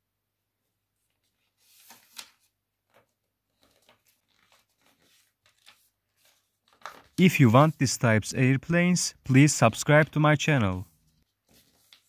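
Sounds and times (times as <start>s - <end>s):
paper rustling and crinkling: 1.0s - 7.2s, 10.8s - 12.0s.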